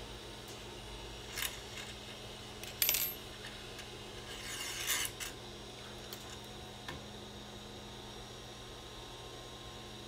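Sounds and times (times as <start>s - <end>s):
metal scraping rub: 4.2s - 5.3s.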